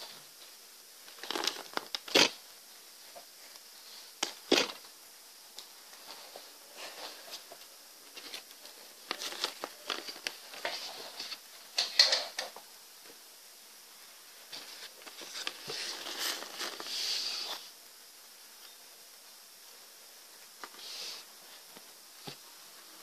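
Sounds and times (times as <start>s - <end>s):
paper crinkling: 1.1s - 2.4s, 8.1s - 11.4s, 14.5s - 17.7s.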